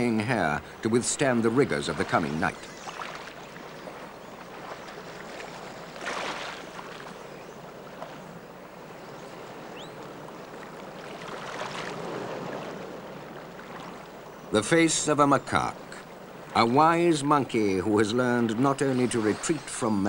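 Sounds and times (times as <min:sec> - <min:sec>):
rush of running water: 0:00.0 - 0:20.0.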